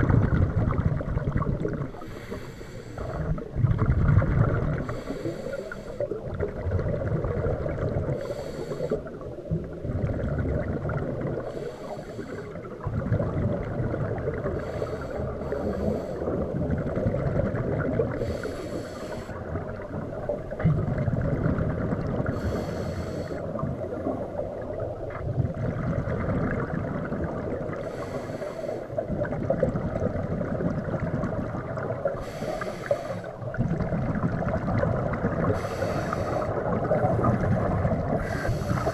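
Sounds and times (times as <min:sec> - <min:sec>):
gurgling exhaled bubbles: 0:00.0 - 0:38.9
regulator air hiss: 0:02.0 - 0:03.2, 0:04.9 - 0:06.1, 0:08.2 - 0:09.0, 0:11.5 - 0:12.6, 0:14.6 - 0:16.3, 0:18.2 - 0:19.4, 0:22.4 - 0:23.6, 0:27.8 - 0:29.0, 0:32.2 - 0:33.4, 0:35.5 - 0:36.6, 0:38.2 - 0:38.9.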